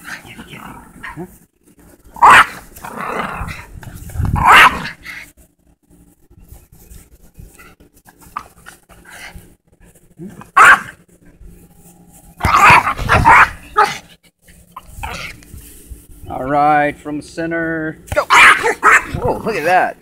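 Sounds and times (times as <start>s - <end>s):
small dogs barking: 2.1s - 3.6s, 4.4s - 5.2s, 10.3s - 11.0s, 12.4s - 15.4s, 18.2s - 19.5s.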